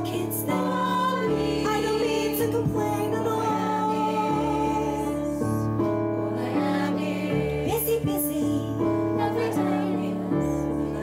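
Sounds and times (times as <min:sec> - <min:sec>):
woman singing a slow ballad: 0:00.0 - 0:05.7, 0:07.7 - 0:10.6
electric piano chords: 0:00.0 - 0:11.0.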